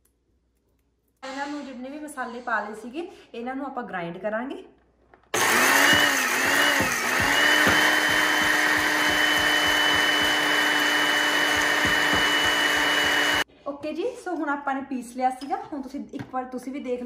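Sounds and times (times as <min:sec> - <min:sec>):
mixer grinder motor whine: 0:05.4 - 0:13.4.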